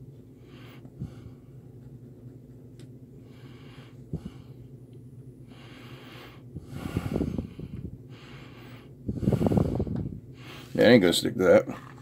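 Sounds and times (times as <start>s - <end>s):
man breathing heavily through nose: 0.4s - 1.6s, 3.2s - 4.8s, 5.4s - 10.8s.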